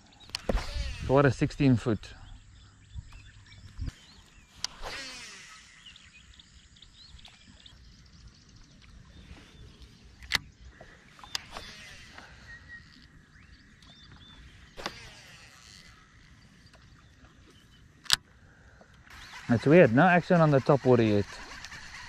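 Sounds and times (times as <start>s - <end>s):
birds chirping: 0.0s - 22.0s
wind rumble on microphone: 0.4s - 4.2s.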